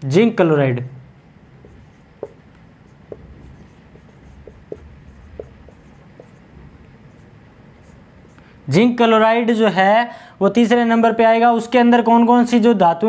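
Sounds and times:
marker writing on whiteboard: 1.4 - 8.5.

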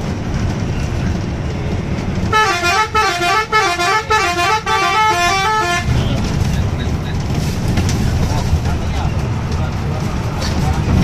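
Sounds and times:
bus engine rumbling: 0.0 - 11.0
multi-tone bus horn melody: 2.2 - 6.2.

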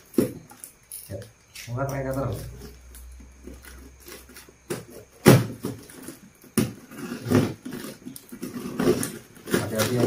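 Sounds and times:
box cutter slicing cardboard: 4.1 - 10.0.

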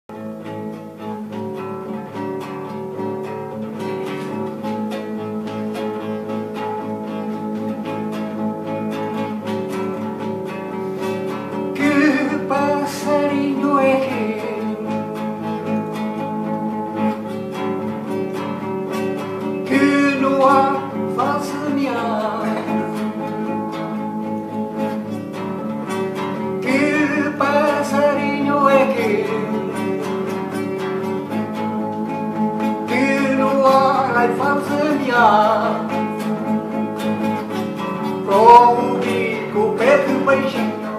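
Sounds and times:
classical guitar strumming: 0.1 - 40.9
man singing: 11.7 - 15.2, 19.6 - 23.3, 26.5 - 30.1, 32.6 - 36.5, 38.1 - 40.9.

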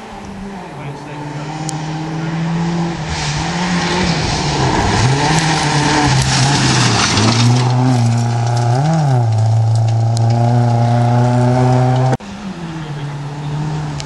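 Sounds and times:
rally car engine revving: 0.0 - 14.0
tyres rushing on gravel: 3.0 - 12.0.

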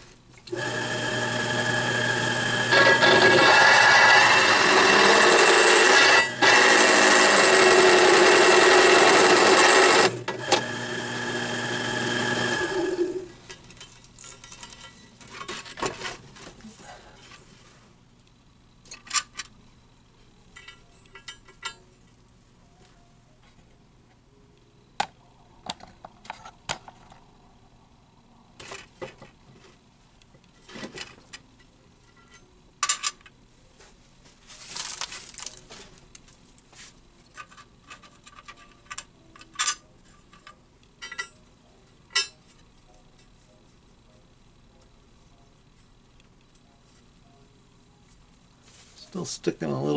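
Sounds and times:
drill press grinding into steel: 0.5 - 13.3.

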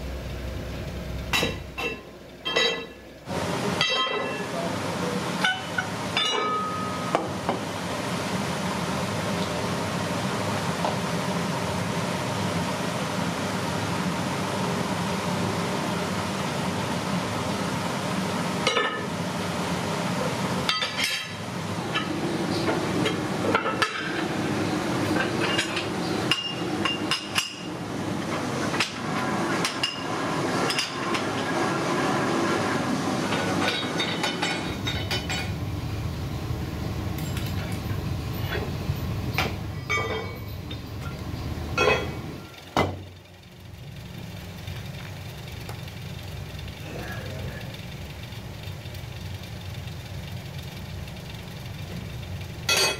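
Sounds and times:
steady background hum: 0.0 - 52.9
metal plates clinking: 1.4 - 3.0, 39.4 - 40.5.

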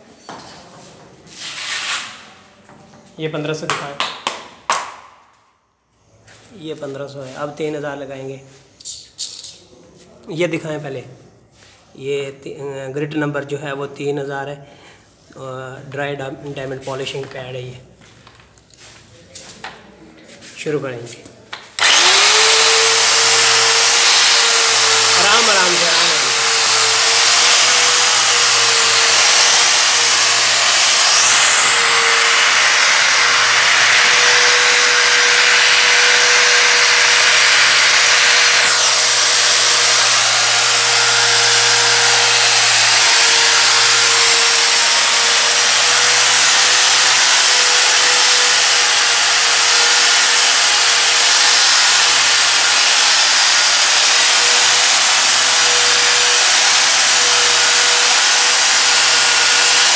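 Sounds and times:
angle grinder motor whine: 21.8 - 59.9
polishing pad hissing on stone: 21.9 - 45.5.

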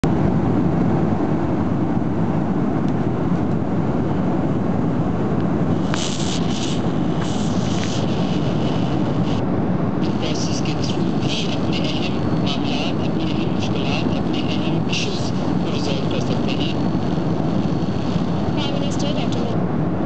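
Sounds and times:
airliner cabin jet engine rumble: 0.0 - 20.0
short bursts of high hiss: 5.8 - 8.1.

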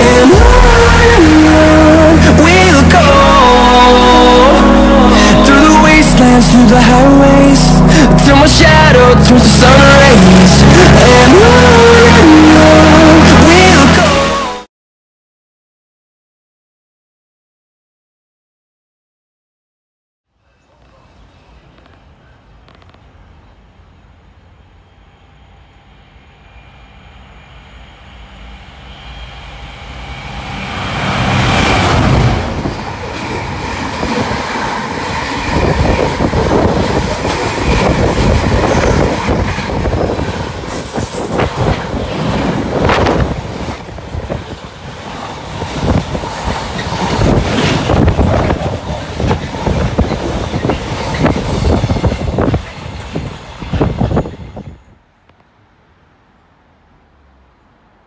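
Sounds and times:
diesel locomotive engine: 0.0 - 14.6, 20.4 - 58.0
train wheels clattering over rails: 31.3 - 54.8.

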